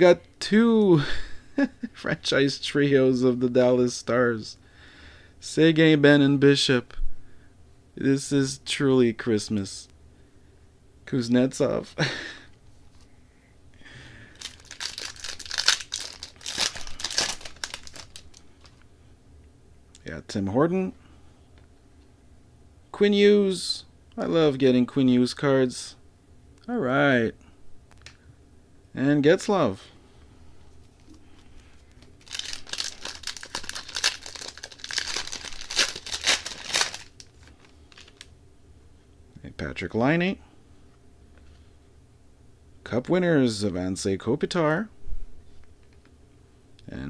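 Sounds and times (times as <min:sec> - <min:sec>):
wrapper tearing and crinkling: 0:14.4 - 0:18.8, 0:32.0 - 0:38.3.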